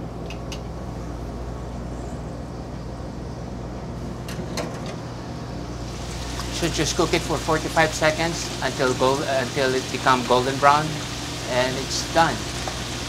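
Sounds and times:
kitchen machinery hum: 0.0 - 13.0
food frying in bubbling oil: 5.7 - 13.0.

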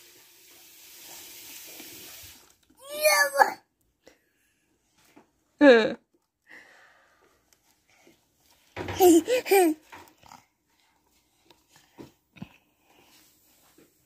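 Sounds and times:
toddler's loud wavering vocal outburst: 2.8 - 3.6.

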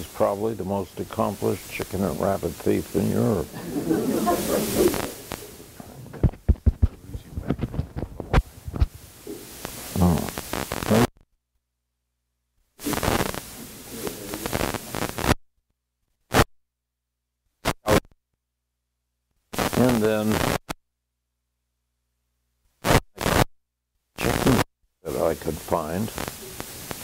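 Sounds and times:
hiss: 0.0 - 5.8, 8.8 - 11.1, 12.8 - 15.2, 25.6 - 27.0
microphone rubbing and crackling: 1.4 - 11.2, 12.8 - 15.3, 22.8 - 23.4.

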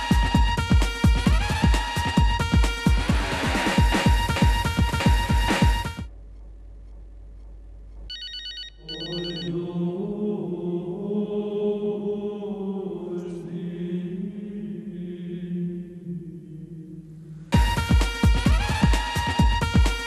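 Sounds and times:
mobile phone ringing: 8.1 - 9.6.

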